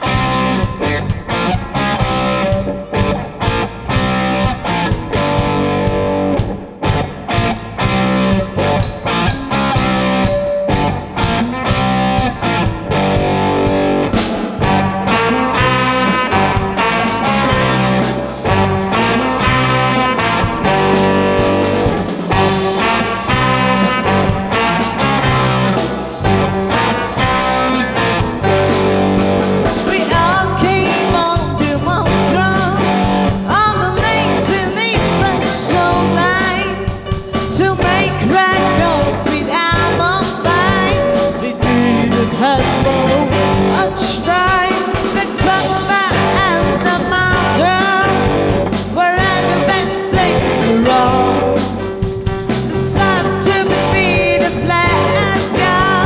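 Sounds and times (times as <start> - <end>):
small band playing: 0.0 - 56.0
woman singing: 29.8 - 32.9, 33.5 - 51.9, 52.5 - 56.0.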